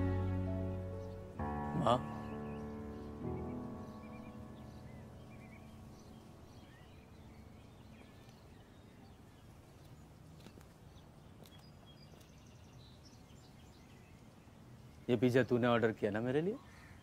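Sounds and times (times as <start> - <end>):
background music: 0.0 - 7.2
bird chirps: 0.5 - 15.6.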